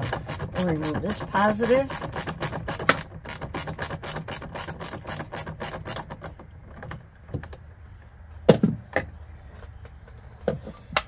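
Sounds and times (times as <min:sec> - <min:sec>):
ratchet wrench clicking: 0:00.0 - 0:06.3.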